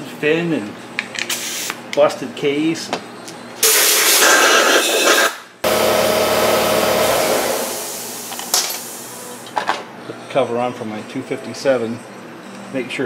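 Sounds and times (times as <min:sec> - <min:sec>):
air blow gun hissing: 0:03.6 - 0:09.4.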